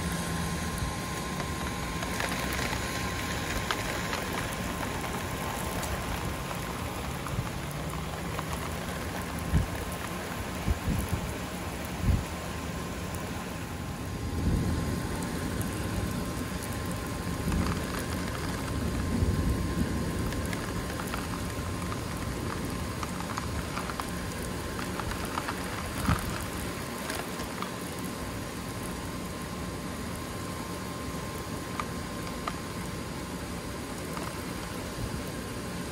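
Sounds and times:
heavy rain: 0:00.0 - 0:35.9
water drips ticking: 0:00.1 - 0:13.4, 0:15.2 - 0:29.0
thunder rumbling: 0:14.1 - 0:26.9.

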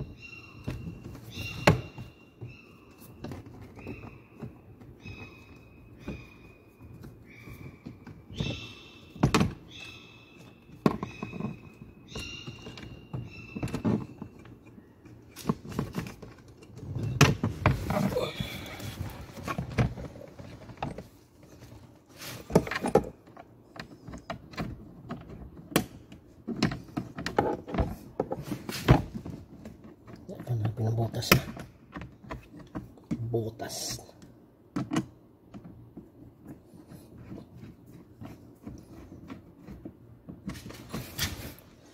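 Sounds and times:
plastic rubbing squeaks: 0:00.0 - 0:33.4, 0:35.6 - 0:41.9
plastic clicks and knocks: 0:34.2 - 0:36.6.

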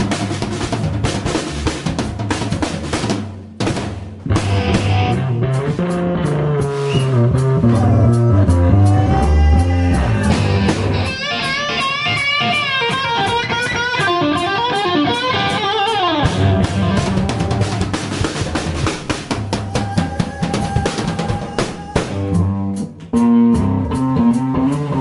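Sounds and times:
live rock band: 0:00.0 - 0:25.0
electric guitar solo: 0:04.4 - 0:18.0.

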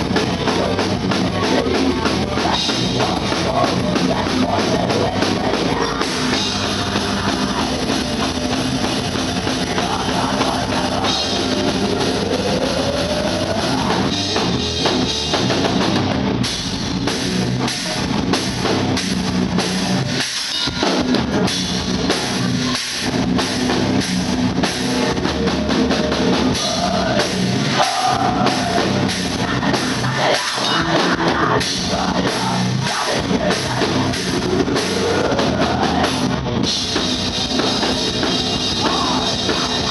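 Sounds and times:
drum kit with cymbals: 0:00.0 - 0:39.9
electric guitars: 0:00.0 - 0:39.9.

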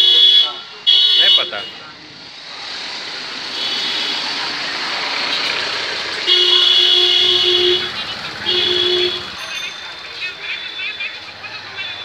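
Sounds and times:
vehicle horn honking: 0:00.0 - 0:01.9, 0:03.5 - 0:04.3, 0:06.2 - 0:09.7
street traffic noise: 0:00.0 - 0:12.0.

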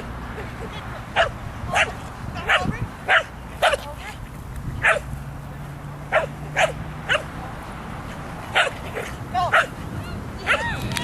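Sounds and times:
dog barking: 0:01.2 - 0:03.9, 0:04.8 - 0:05.1, 0:06.1 - 0:07.3, 0:08.5 - 0:09.7.

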